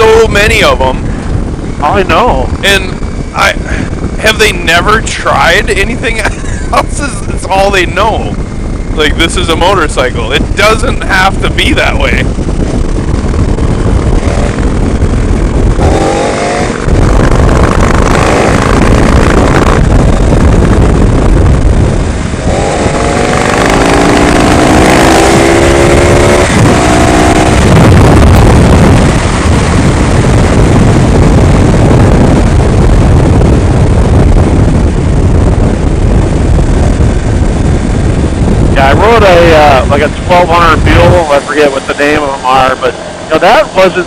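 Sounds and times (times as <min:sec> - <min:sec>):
heavy wind rush: 0:00.0 - 0:44.0
motorcycle engine accelerating: 0:10.2 - 0:44.0.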